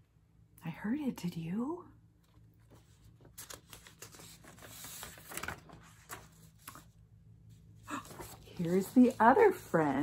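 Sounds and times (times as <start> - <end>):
paper sheets rustling: 2.6 - 10.0.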